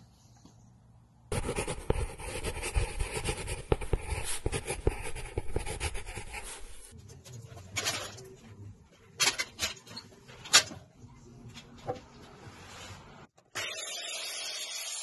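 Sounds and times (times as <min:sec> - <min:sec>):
pencil scratching on wood: 0:01.3 - 0:06.9.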